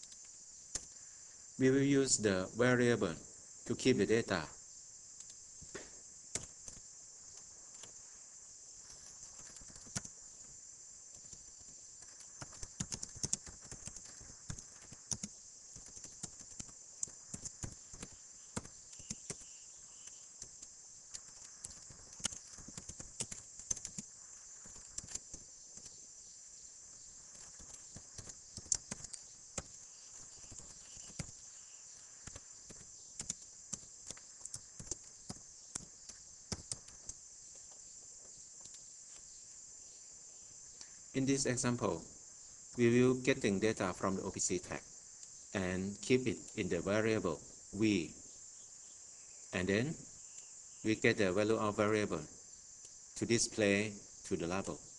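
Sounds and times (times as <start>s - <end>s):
steady high-pitched hiss: 0.0s - 54.9s
computer keyboard key clicks: 12.0s - 19.4s, 24.7s - 25.9s, 32.2s - 37.2s.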